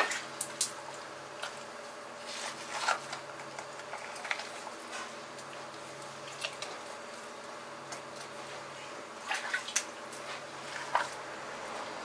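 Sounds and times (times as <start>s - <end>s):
steady low hum: 0.0s - 12.0s
wet squelches of fish gutting: 2.4s - 7.3s, 9.2s - 11.3s.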